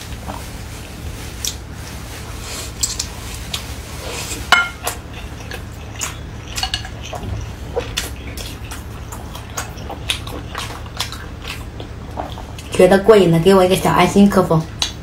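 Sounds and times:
low steady hum: 0.0 - 15.0
utensils clinking against dishes: 4.5 - 5.0.

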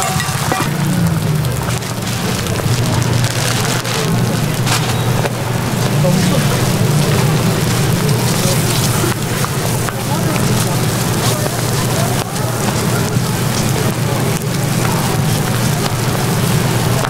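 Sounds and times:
patties sizzling on griddle: 0.0 - 17.0.

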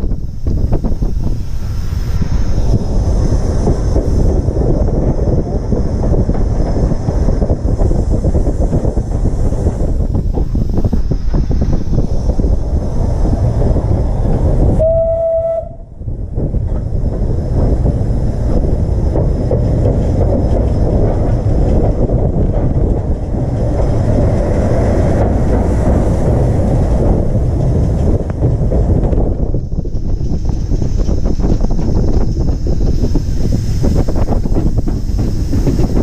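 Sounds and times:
steam locomotive running: 0.0 - 36.0
steam whistle blast: 14.8 - 15.9.

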